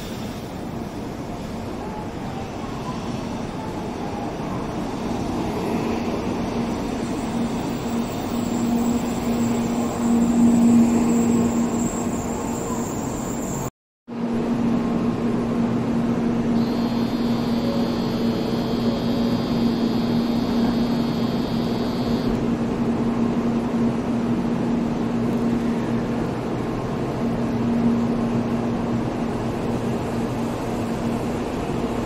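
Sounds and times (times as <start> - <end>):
train rushing noise: 0.0 - 32.0
high multi-tone whine: 15.9 - 22.5.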